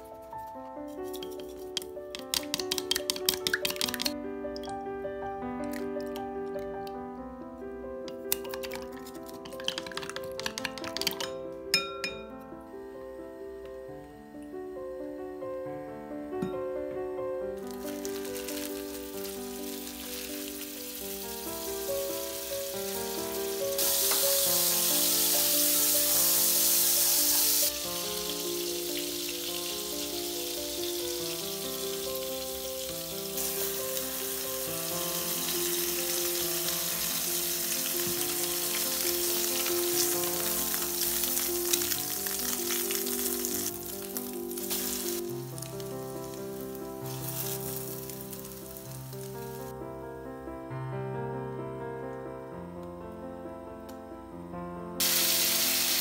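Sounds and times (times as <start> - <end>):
light background music: 0.0 - 50.0
bread sizzling in frying pan: 17.7 - 49.6, 55.0 - 56.0.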